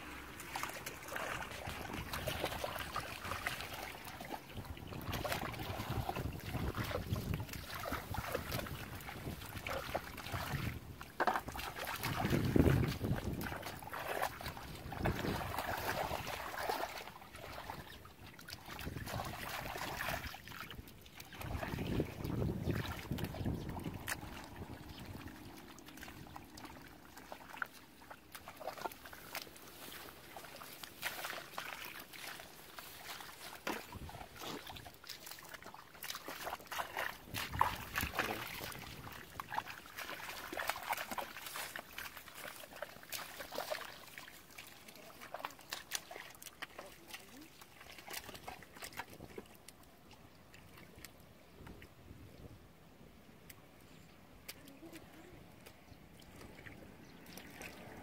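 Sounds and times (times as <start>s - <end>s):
hands sloshing in muddy water: 0.0s - 52.3s, 53.4s - 58.0s
mud squelching and splashing: 0.0s - 52.3s, 53.4s - 58.0s
wind on microphone: 4.6s - 11.0s, 11.9s - 16.4s, 18.8s - 25.5s, 37.2s - 39.6s.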